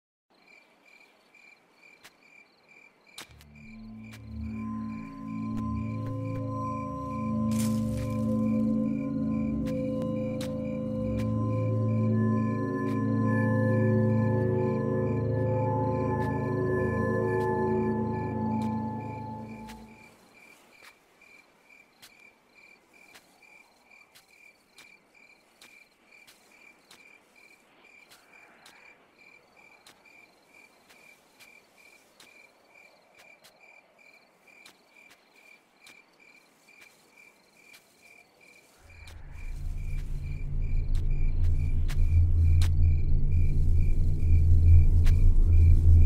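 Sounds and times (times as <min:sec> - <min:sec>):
cricket chirping: 0:00.3 - 0:46.0
low rumble: 0:38.9 - 0:46.0.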